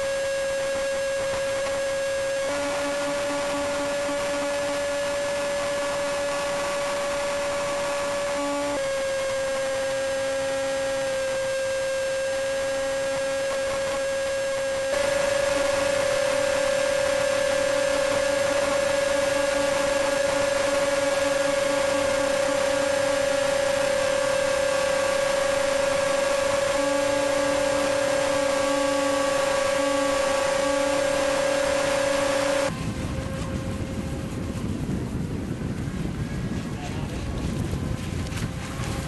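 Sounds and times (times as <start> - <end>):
high motor whine: 0.0 - 39.0
lower motor tone: 0.0 - 39.0
wind and water rushing: 31.0 - 39.0.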